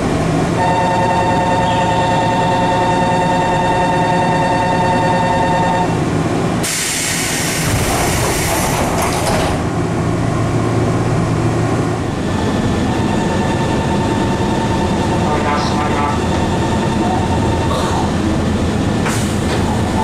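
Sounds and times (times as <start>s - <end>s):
standing train humming: 0.0s - 20.0s
train door warning tone: 0.6s - 6.0s, 12.8s - 18.2s
pneumatic doors hissing: 6.6s - 9.6s, 19.0s - 19.9s.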